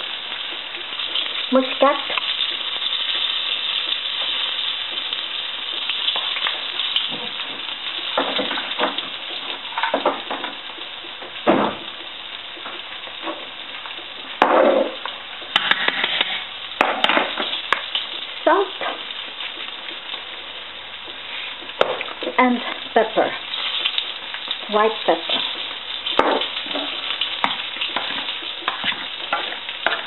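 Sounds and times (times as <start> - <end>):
food sizzling in a pan: 0.0 - 30.0
utensils knocking on saucepan: 26.2 - 30.0.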